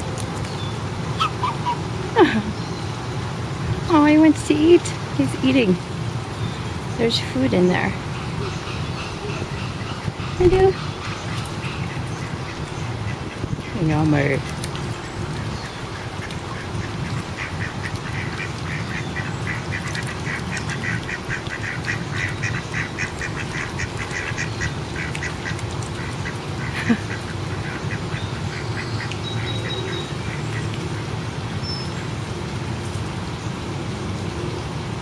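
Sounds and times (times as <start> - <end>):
low background hum: 0.0 - 33.0
ducks quacking: 1.2 - 2.4, 7.6 - 31.1.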